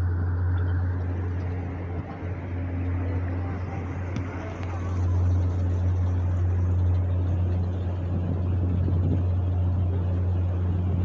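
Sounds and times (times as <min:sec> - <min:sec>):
boat motor humming: 0:00.0 - 0:11.0.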